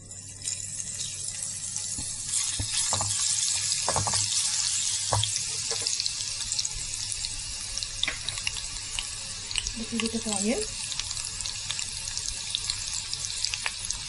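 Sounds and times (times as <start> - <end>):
garlic sizzling in hot oil: 0.0 - 14.0
spatula knocking against pan: 3.8 - 4.3, 5.1 - 5.9.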